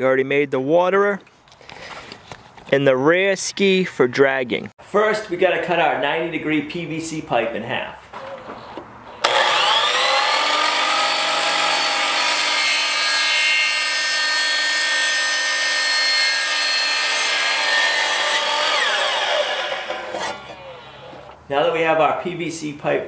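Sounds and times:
electric miter saw whining: 9.2 - 21.4.

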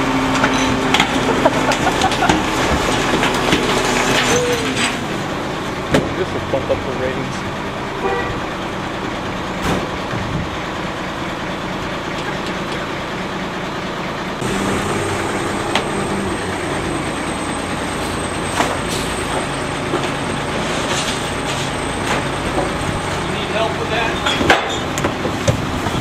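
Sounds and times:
garbage truck engine idling: 0.0 - 26.0
trash knocking into hopper: 0.3 - 5.1, 9.6 - 10.5.

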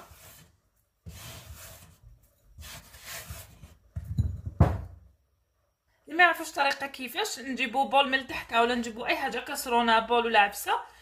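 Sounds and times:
hands scraping crumbs across board: 0.0 - 3.8
bowl knocking: 4.0 - 5.0.

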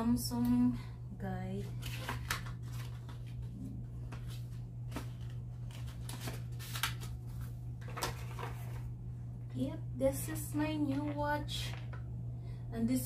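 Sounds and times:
steady low hum: 0.0 - 13.0
paper and cardboard rustling: 1.6 - 8.9.

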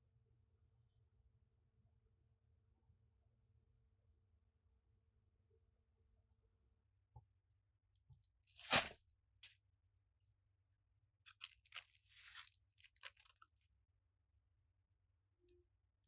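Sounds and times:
parchment paper crinkling and tearing: 8.5 - 9.0, 11.3 - 13.6.

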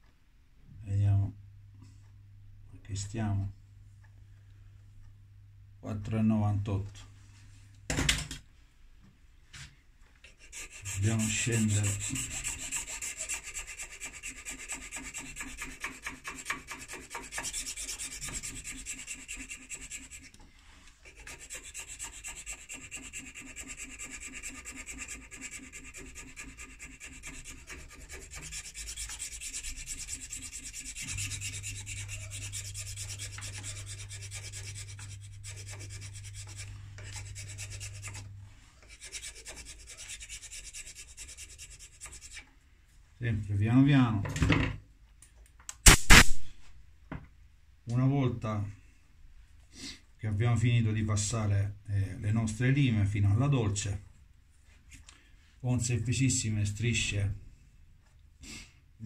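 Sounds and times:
steady low hum: 0.3 - 7.9, 28.6 - 40.5
file rasping on pipe stem: 10.2 - 42.5.

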